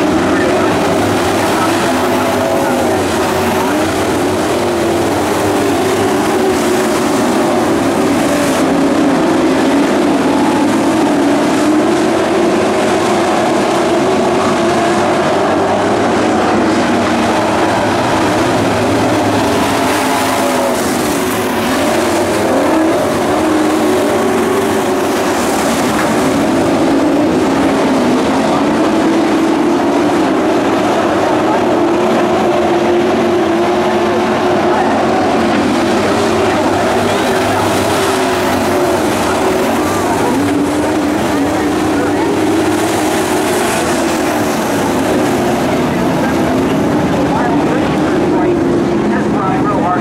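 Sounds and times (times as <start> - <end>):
racing truck engines: 0.0 - 50.0.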